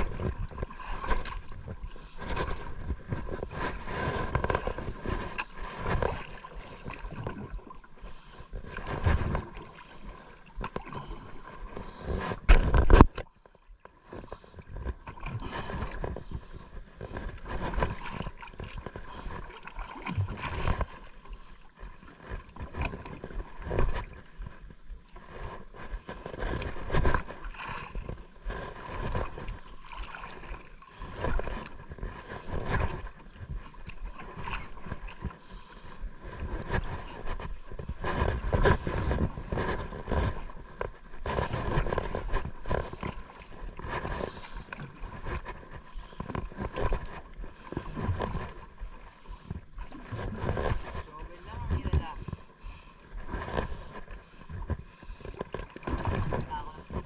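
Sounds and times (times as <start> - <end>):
water slapping against boat hull: 0.0 - 57.0.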